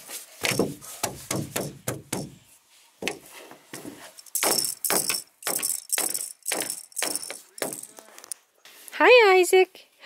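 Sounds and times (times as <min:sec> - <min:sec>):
hands slapping canoe floor: 0:00.4 - 0:02.4
toy rattle jingling: 0:04.2 - 0:08.1.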